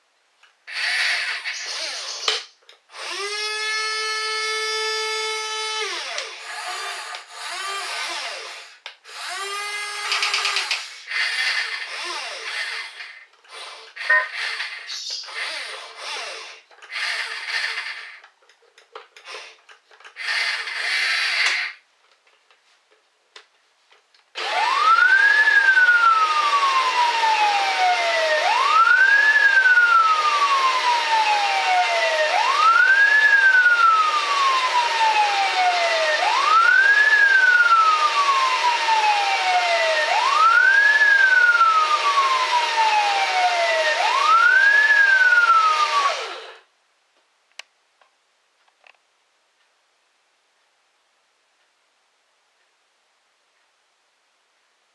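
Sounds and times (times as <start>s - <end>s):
toy gear motors whirring: 0.7s - 18.6s, 19.2s - 21.8s, 28.8s - 46.6s
toy electronic siren wailing: 14.0s - 15.6s, 24.5s - 46.3s.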